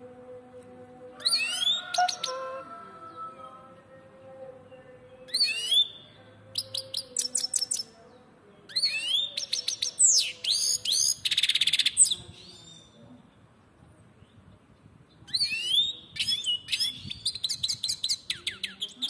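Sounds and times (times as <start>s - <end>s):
bird twittering and trilling: 8.7s - 13.0s, 15.2s - 19.0s.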